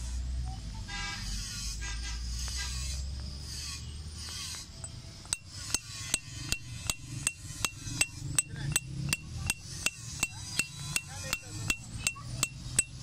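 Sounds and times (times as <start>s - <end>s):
hammer tapping chisel on stone: 5.3s - 13.0s.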